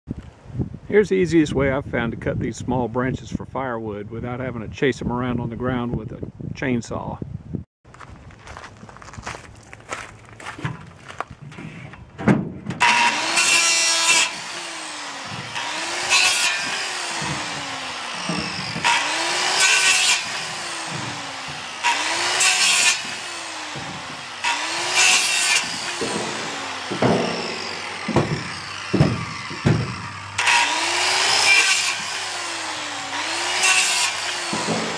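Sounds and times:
wood knocks falling: 0:10.4 - 0:13.0, 0:16.6 - 0:19.2, 0:20.2 - 0:30.6, 0:34.4 - 0:34.9
circular saw cutting branches: 0:12.8 - 0:34.9.

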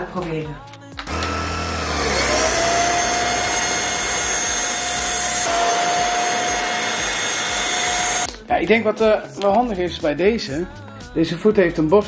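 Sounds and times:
vacuum cleaner motor whine: 0:01.1 - 0:08.3.

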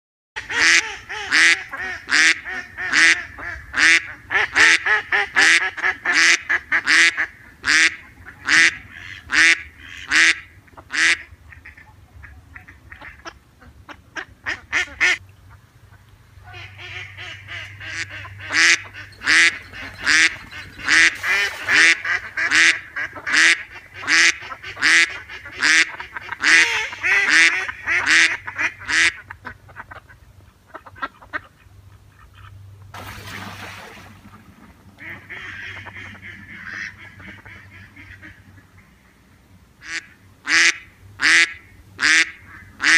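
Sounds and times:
ducks quacking: 0:00.4 - 0:32.7, 0:34.0 - 0:39.1, 0:39.8 - 0:42.9.

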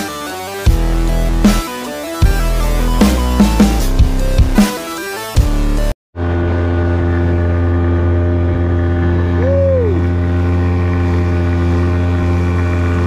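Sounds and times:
outboard motor running: 0:06.2 - 0:13.0.

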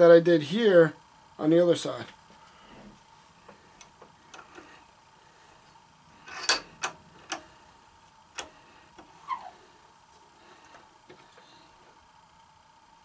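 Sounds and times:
metallic ring: 0:06.2 - 0:06.8.

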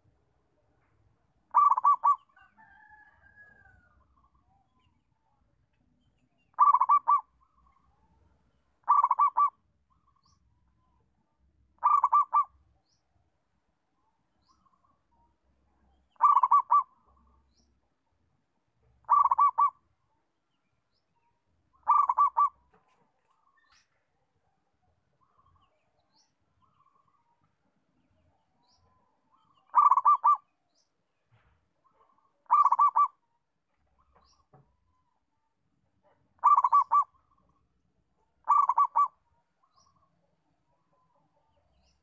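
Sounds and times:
dove cooing: 0:01.5 - 0:03.0, 0:06.5 - 0:07.3, 0:08.8 - 0:09.6, 0:11.8 - 0:12.5, 0:16.2 - 0:17.0, 0:19.0 - 0:19.8, 0:21.8 - 0:22.6, 0:29.7 - 0:30.5, 0:32.4 - 0:33.2, 0:36.4 - 0:37.2, 0:38.4 - 0:39.2.

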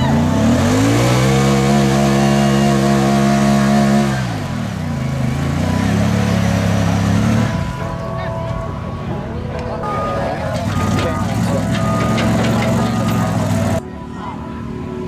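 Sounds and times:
utility vehicle engine revving: 0:00.0 - 0:13.8.

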